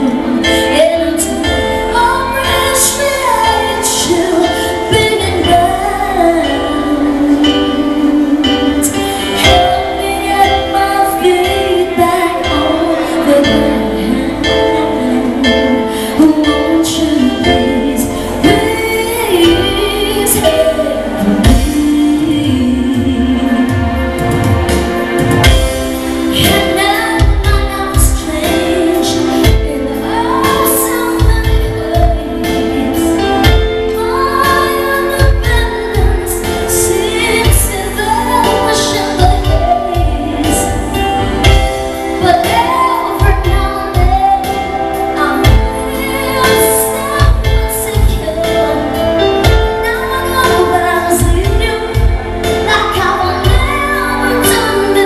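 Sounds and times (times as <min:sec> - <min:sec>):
amplified backing music: 0:00.0 - 0:55.0
woman singing into microphone: 0:00.0 - 0:55.0.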